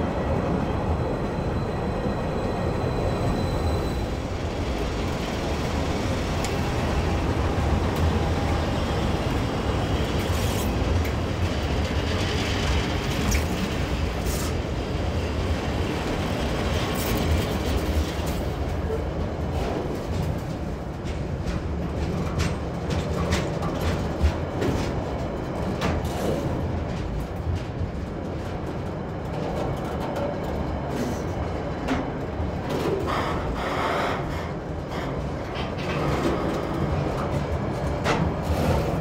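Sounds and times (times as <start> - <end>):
freight train rumbling: 0.0 - 39.0
train clanks and knocks: 0.0 - 39.0.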